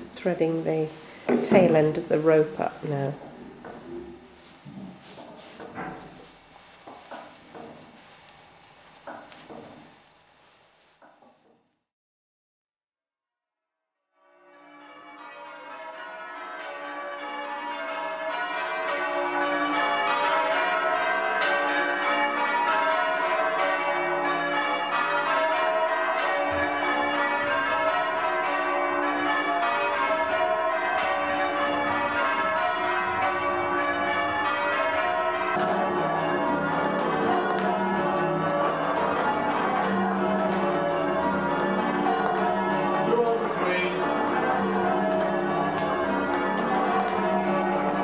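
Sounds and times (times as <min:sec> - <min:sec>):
church bells ringing: 0:00.0 - 0:03.2, 0:14.2 - 0:48.0.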